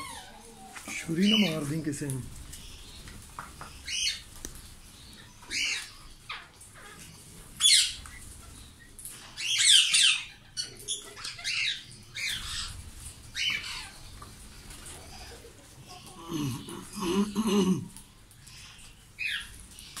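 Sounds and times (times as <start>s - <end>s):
parakeets squawking: 0.0s - 2.9s, 3.7s - 4.3s, 5.1s - 8.6s, 9.3s - 14.2s.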